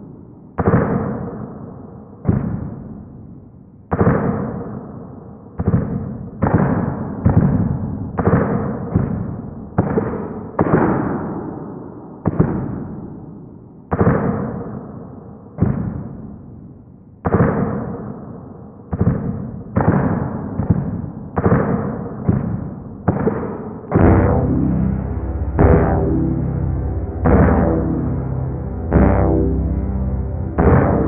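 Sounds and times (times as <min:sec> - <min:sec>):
heavy struck ringing notes: 0:23.9 - 0:31.0.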